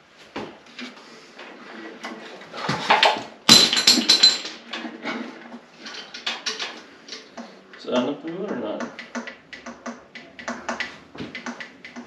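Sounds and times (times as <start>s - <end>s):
metal clicks and clunks: 2.9s - 12.0s.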